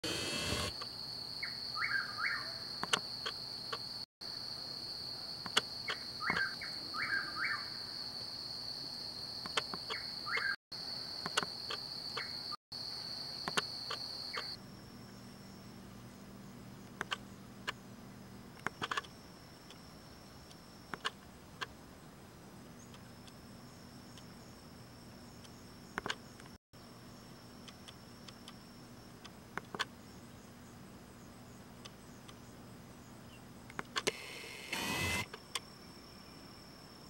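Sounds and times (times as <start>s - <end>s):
high insect trill: 0.7s - 37.0s
bird chirps: 1.4s - 3.4s, 5.8s - 7.9s, 9.5s - 10.6s, 11.8s - 12.6s, 13.5s - 15.3s
scattered clicks: 9.4s - 10.5s, 16.9s - 17.8s, 18.6s - 19.8s, 33.7s - 35.7s.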